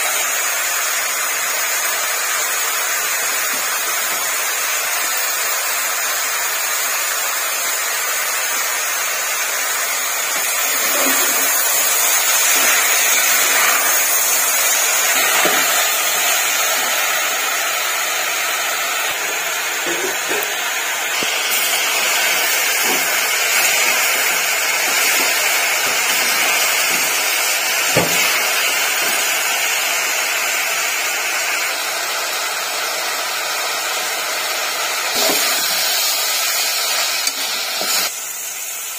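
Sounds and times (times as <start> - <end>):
stove-top burner hissing: 0.0 - 38.9.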